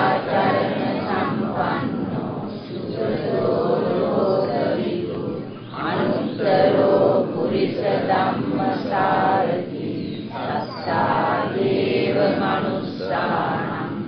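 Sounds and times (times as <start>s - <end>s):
voices chanting in unison: 0.0s - 14.0s.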